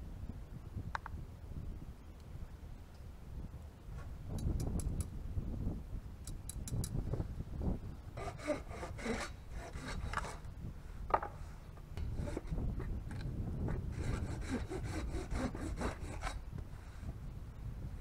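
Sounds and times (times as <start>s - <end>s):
wind rumble on microphone: 0.0s - 18.0s
hand saw cutting wood: 8.2s - 10.4s, 12.1s - 12.9s, 13.6s - 16.4s.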